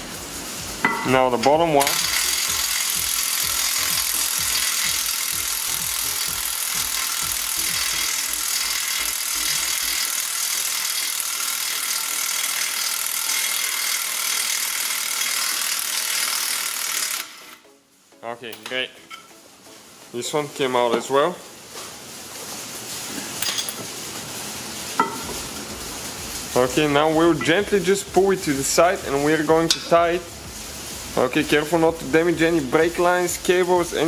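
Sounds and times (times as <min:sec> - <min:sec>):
electric ratchet running: 0:01.6 - 0:17.7.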